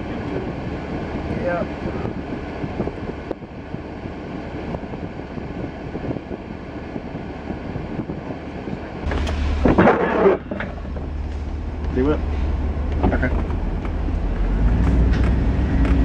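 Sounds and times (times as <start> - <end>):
rough engine sound: 0.0 - 16.0
pickup truck idling: 8.9 - 16.0.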